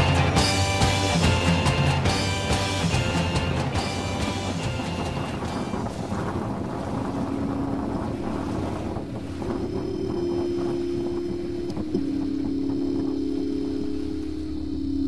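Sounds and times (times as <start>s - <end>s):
steady low tones: 0.0s - 15.0s
water rushing past hull: 0.0s - 15.0s
wind on microphone: 0.0s - 15.0s
higher tone: 7.3s - 15.0s.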